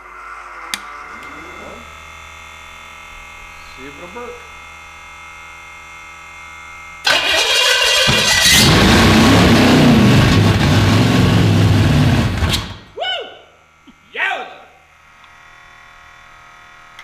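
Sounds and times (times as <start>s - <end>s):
engine starter cranking: 7.0s - 12.9s
engine rumbling and revving: 7.1s - 12.8s.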